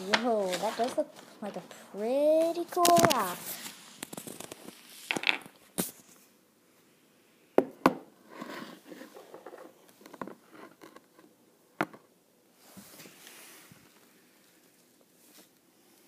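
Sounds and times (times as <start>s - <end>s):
soft rustling: 0.0s - 6.4s, 12.6s - 16.0s.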